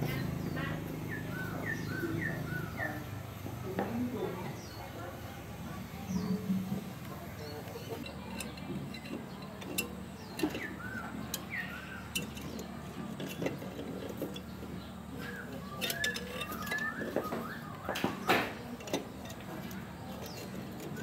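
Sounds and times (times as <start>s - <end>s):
small birds chirping: 0.0s - 21.0s
light metal clicks and taps: 7.6s - 14.5s, 15.8s - 21.0s.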